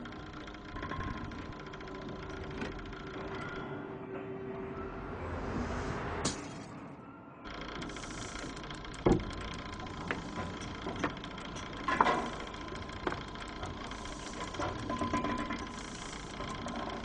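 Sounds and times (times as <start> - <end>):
clanks and clicks: 0.0 - 3.8, 7.5 - 17.0
mechanical hum: 0.0 - 17.0.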